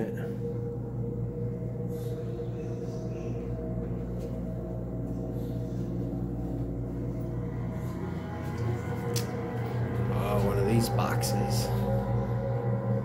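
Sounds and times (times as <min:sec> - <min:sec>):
ambient music drone: 0:00.0 - 0:13.0.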